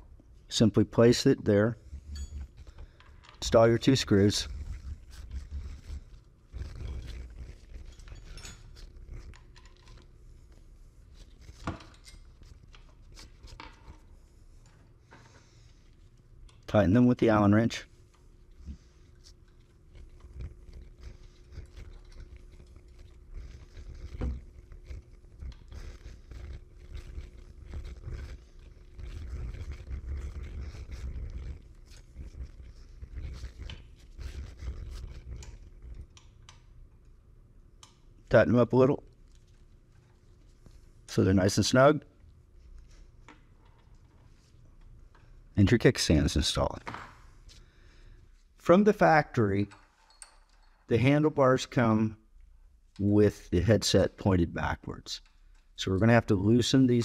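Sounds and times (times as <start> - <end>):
light metal clicks and scrapes: 1.8 - 16.8
metal clicks and scrapes: 2.0 - 14.9, 18.0 - 37.1
hands and tool rubbing: 3.4 - 36.6.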